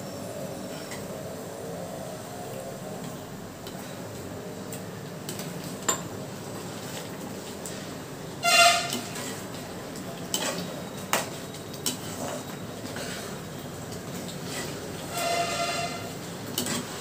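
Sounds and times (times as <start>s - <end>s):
short horn toot: 8.4s - 9.1s, 15.1s - 16.1s
spoon stirring dough in a pan: 8.4s - 17.0s.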